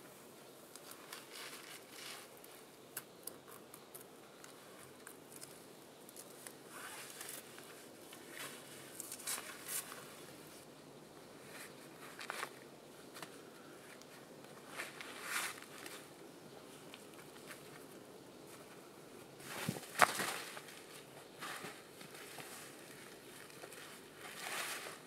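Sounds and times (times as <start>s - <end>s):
canvas and cord rustling: 18.4s - 25.0s.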